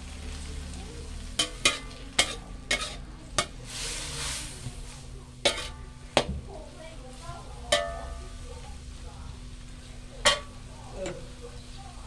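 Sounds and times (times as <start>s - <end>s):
food sizzling: 0.0s - 12.0s
metal spatula clanking on wok: 1.4s - 3.6s, 5.4s - 6.3s, 7.7s - 8.4s, 10.2s - 11.3s.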